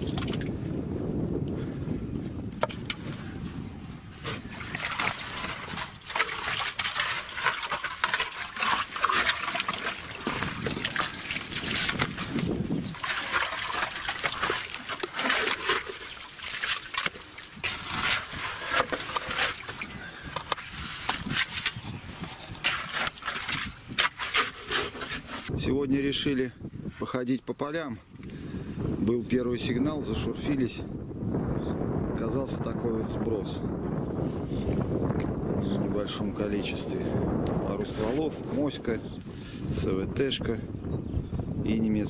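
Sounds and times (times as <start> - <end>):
muddy water splashing: 0.0 - 0.6, 4.2 - 25.5
shovel scraping wet clay: 4.2 - 25.6.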